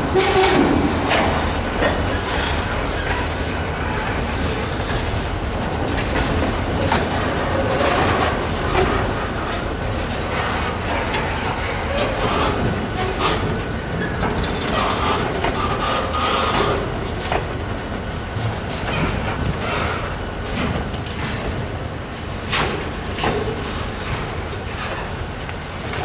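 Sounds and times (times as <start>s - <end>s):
train wheels rumbling on rail: 0.0s - 26.0s
wheels squealing: 11.7s - 20.6s.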